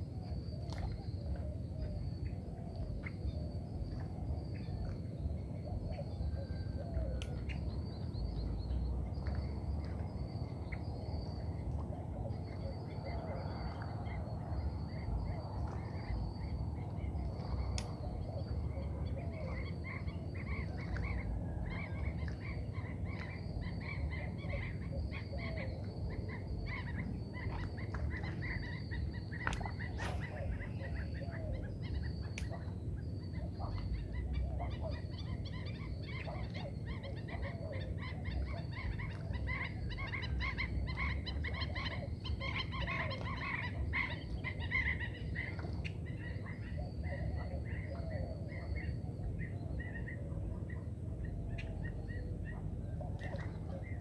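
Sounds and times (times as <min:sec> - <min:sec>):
steady low rumble: 0:00.0 - 0:54.0
birds chirping and calling: 0:11.2 - 0:54.0.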